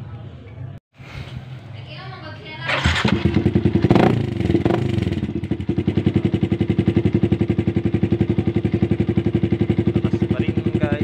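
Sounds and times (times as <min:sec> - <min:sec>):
motorcycle engine revving and idling: 0:02.7 - 0:11.0.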